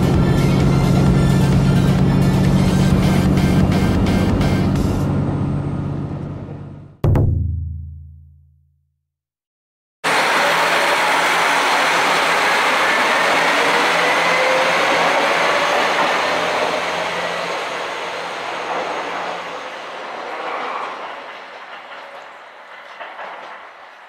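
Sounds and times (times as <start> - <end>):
diesel train running past: 0.0 - 7.0, 10.1 - 24.0
wheels clicking over rail joints: 18.5 - 24.0.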